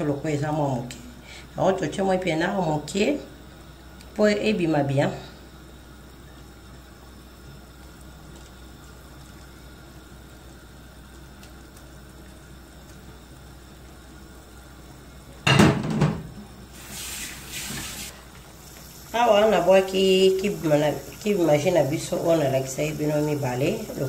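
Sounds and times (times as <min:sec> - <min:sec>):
water running from tap: 0:06.0 - 0:15.4, 0:16.1 - 0:24.0.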